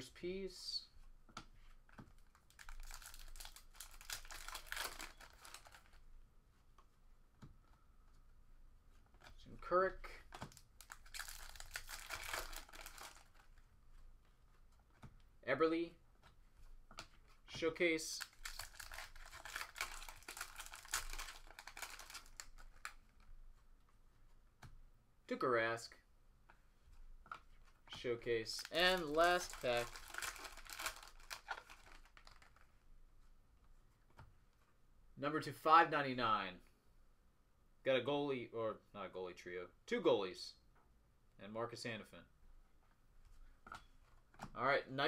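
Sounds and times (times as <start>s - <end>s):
cards rustling and clicking: 1.3s - 8.3s, 10.0s - 15.3s, 16.1s - 24.8s, 26.4s - 32.7s
foil wrapper crinkling: 2.2s - 6.0s, 10.5s - 13.6s, 18.2s - 23.2s, 28.5s - 32.7s.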